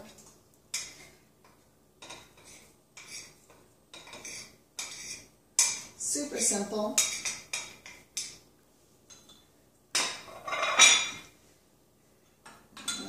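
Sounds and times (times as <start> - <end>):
spoon scraping a plate: 2.0 - 5.9, 10.1 - 11.3.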